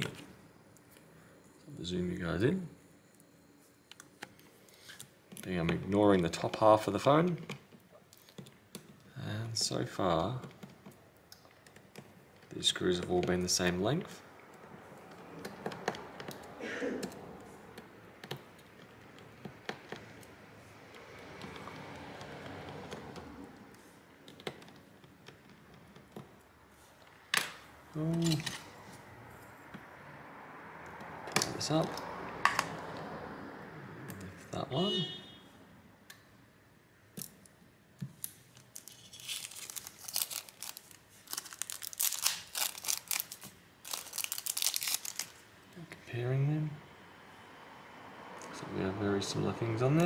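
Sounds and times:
plastic bag crinkling: 38.2s - 45.4s.

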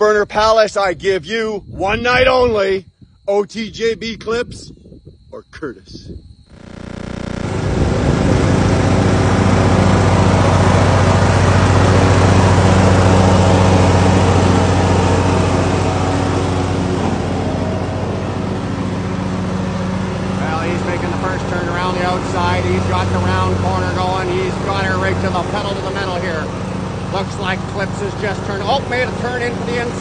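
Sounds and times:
lawn tractor engine running: 6.5s - 30.0s.

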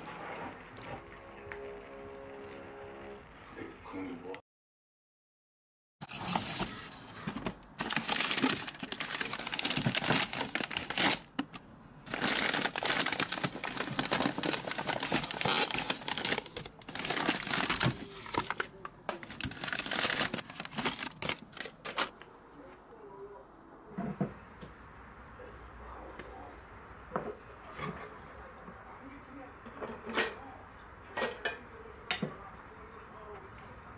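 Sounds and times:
crinkling and rustling: 6.0s - 22.2s.

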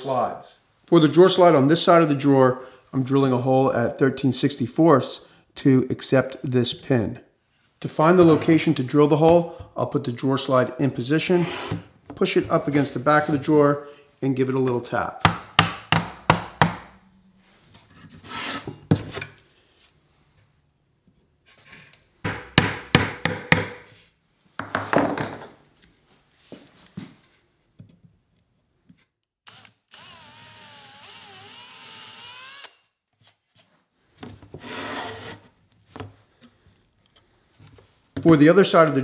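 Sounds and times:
cordless drill running: 29.4s - 32.9s.

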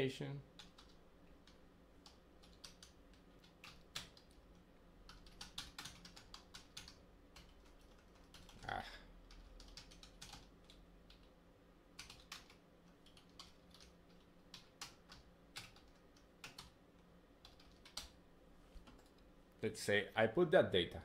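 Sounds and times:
typing on a computer keyboard: 0.6s - 8.6s, 9.2s - 16.8s, 17.4s - 18.2s.

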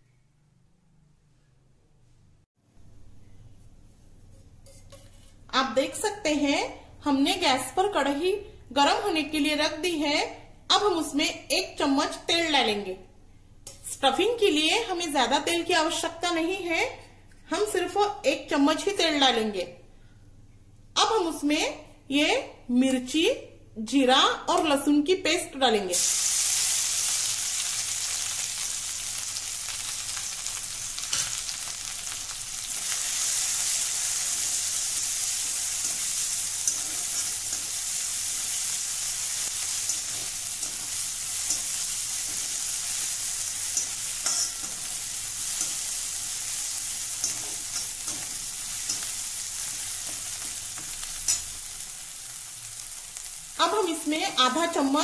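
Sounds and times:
metal spatula scraping pan: 4.3s - 5.4s, 43.6s - 44.9s
paste sizzling in hot oil: 26.0s - 55.0s.

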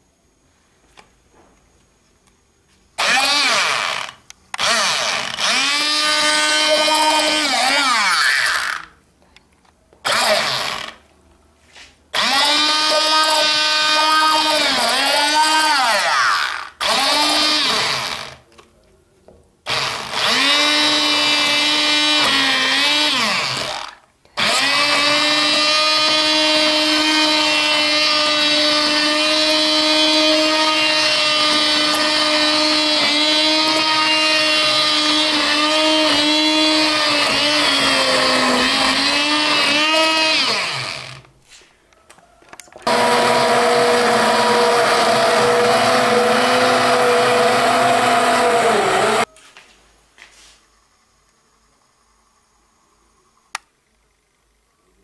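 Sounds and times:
immersion blender motor running: 3.0s - 8.9s, 10.1s - 11.0s, 12.2s - 18.4s, 19.7s - 41.3s, 42.8s - 49.3s.

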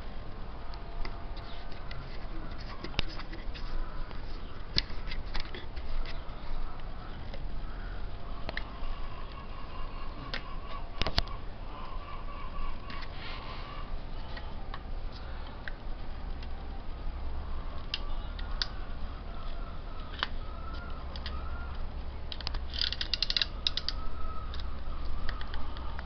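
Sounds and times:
plastic clamp clicks and creaks: 20.0s - 26.0s.

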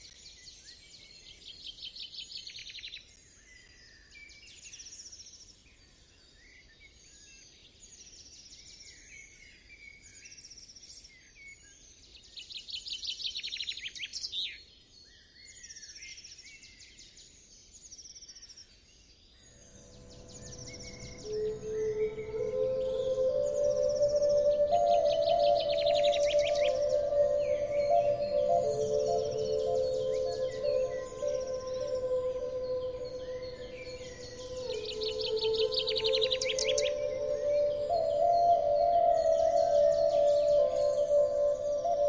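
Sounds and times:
birds singing trills and chirps: 19.6s - 42.0s
held flute note: 19.6s - 42.0s.

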